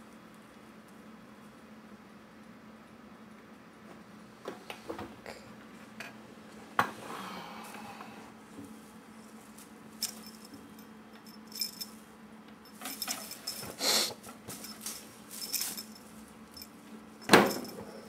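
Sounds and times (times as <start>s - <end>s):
small bell jingling: 10.0s - 12.0s, 12.7s - 13.8s, 14.5s - 16.7s.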